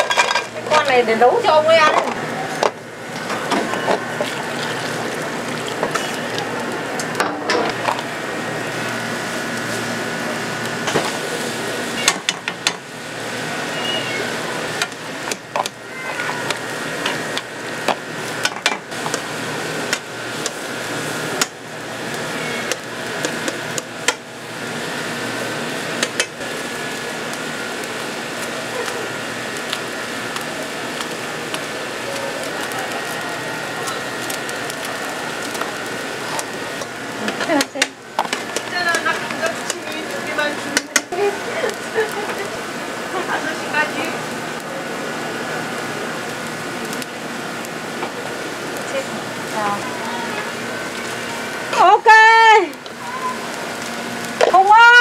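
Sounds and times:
pots and utensils clattering: 0.0 - 0.9
steady hum: 0.0 - 55.0.

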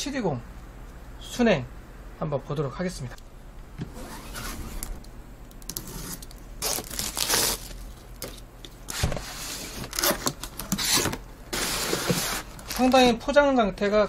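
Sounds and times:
knife slitting packing tape: 5.7 - 8.4, 9.8 - 12.8
cardboard flaps scraping: 8.9 - 13.2.

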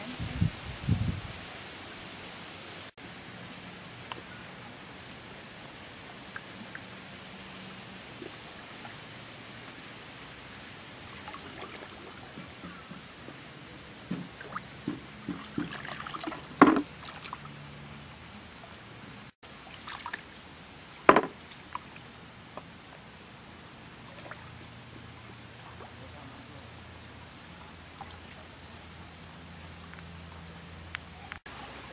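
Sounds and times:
water sloshing and trickling: 5.8 - 18.7, 19.4 - 30.2
small splashes: 6.2 - 13.2, 14.0 - 17.6, 19.5 - 22.1, 24.0 - 24.7
loud splashes: 14.3 - 17.5, 19.6 - 20.4.

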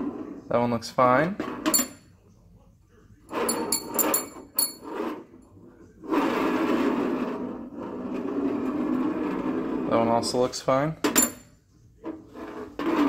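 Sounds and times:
metal rod rolling on toolbox: 3.3 - 5.4, 6.0 - 11.4, 12.0 - 13.0
metal pushrods clinking: 3.5 - 4.8.

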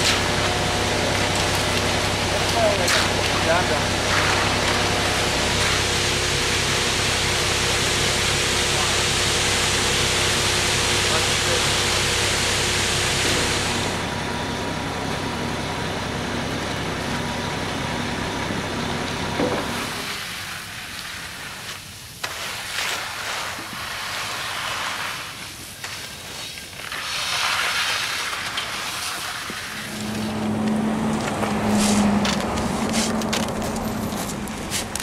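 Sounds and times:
rakes scraping wet concrete: 0.0 - 5.9, 19.7 - 35.0
concrete mixer truck humming: 0.0 - 35.0.

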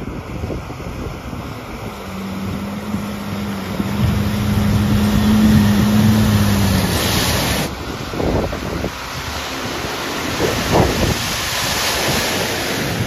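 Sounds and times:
water splashing from wheels: 0.0 - 13.0
truck engine humming: 0.7 - 8.1.

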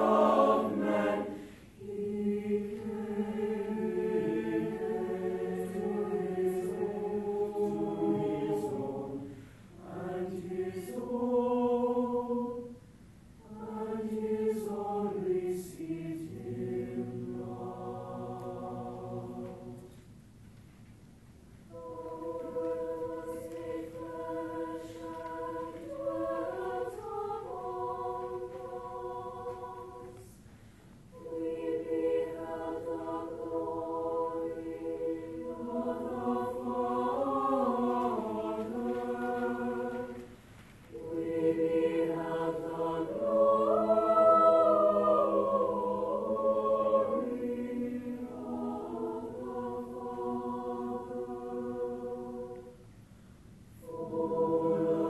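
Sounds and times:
choir singing held chords: 0.0 - 20.2, 21.6 - 55.0.

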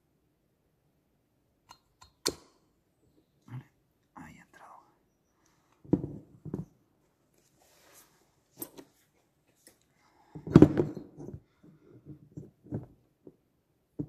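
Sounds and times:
clatter of handling tools: 10.4 - 13.0.

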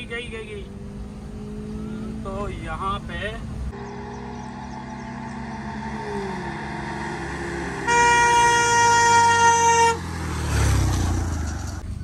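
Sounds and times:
vehicle engine hum: 0.0 - 12.0
vehicle horn blast: 7.8 - 10.0.

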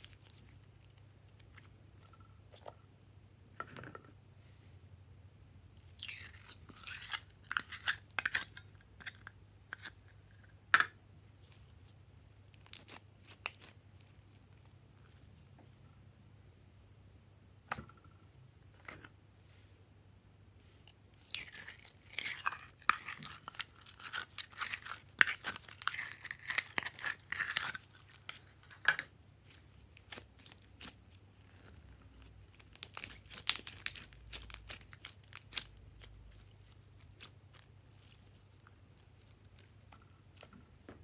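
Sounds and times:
slime crackling and popping: 12.5 - 14.7, 29.4 - 40.5.

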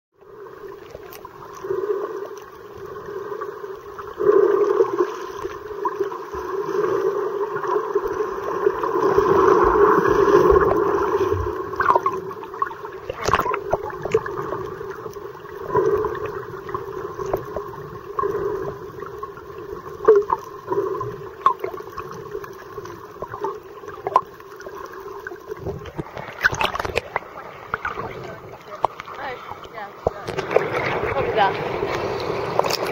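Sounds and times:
muffled underwater rush: 0.2 - 32.9
water splash: 7.5 - 18.4, 19.9 - 32.9
bubbly clicks and pops: 11.8 - 18.3, 20.0 - 24.4, 25.5 - 31.2.

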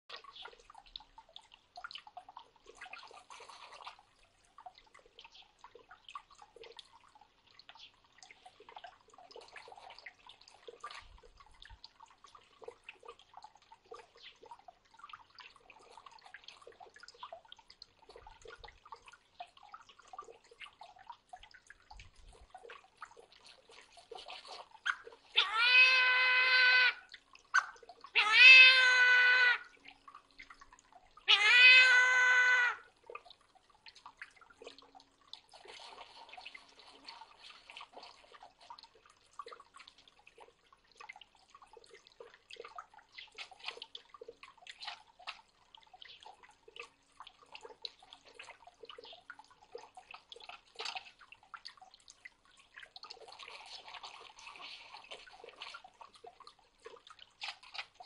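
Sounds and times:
water dripping from a fountain: 0.1 - 58.0
long meowing calls: 25.3 - 27.1, 28.1 - 29.7, 31.2 - 32.9.

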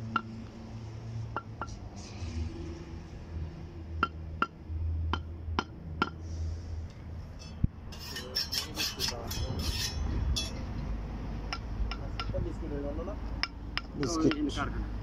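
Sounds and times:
hammer tapping concrete stones: 4.0 - 6.2, 11.5 - 12.4, 13.3 - 14.6
scraping strokes: 7.4 - 10.6.

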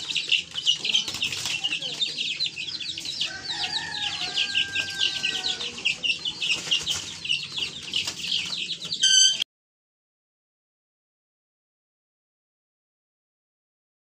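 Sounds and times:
chicks peeping: 0.0 - 9.4
harsh chick call: 2.4 - 6.3, 9.0 - 9.4.

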